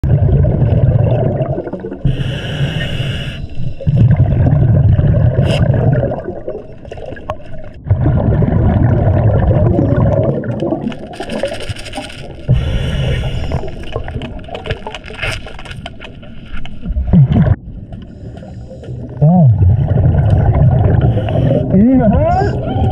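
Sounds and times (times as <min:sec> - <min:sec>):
bubbling exhale: 0:00.0 - 0:06.6, 0:07.9 - 0:10.9, 0:12.5 - 0:14.3, 0:17.1 - 0:21.8
diver inhaling through regulator: 0:02.0 - 0:03.9, 0:12.5 - 0:14.0, 0:20.9 - 0:21.8.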